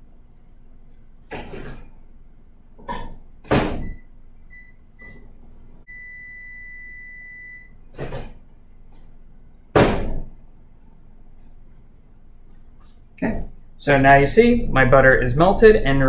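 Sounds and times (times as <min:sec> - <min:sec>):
microwave door thudding shut: 0:02.9 - 0:04.0, 0:09.8 - 0:10.3
microwave keypad beeps: 0:03.8 - 0:05.2, 0:05.9 - 0:07.8
long microwave beep: 0:03.8 - 0:05.3, 0:05.9 - 0:07.8.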